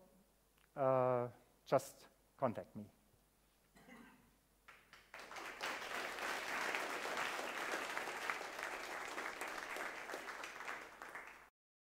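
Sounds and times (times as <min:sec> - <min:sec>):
audience applauding: 0:04.7 - 0:11.5.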